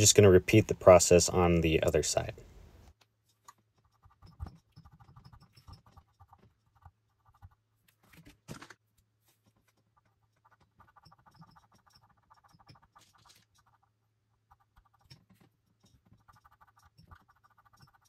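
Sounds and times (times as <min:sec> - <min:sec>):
cotton swab scratching plastic: 0:03.4 - 0:08.3, 0:09.3 - 0:18.0.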